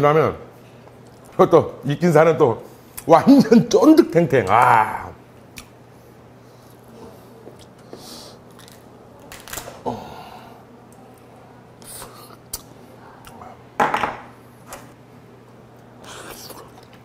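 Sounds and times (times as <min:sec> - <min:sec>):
close-up eating sounds: 0:00.7 - 0:01.4, 0:06.5 - 0:13.7, 0:15.4 - 0:17.0.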